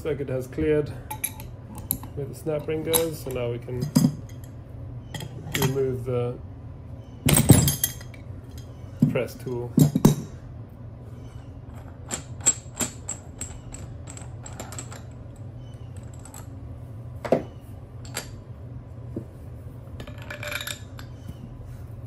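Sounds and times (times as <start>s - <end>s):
steady low hum: 0.0s - 22.0s
metal tool parts clinking: 1.1s - 4.5s, 5.1s - 5.8s, 7.3s - 8.7s, 11.7s - 15.4s, 20.0s - 21.1s.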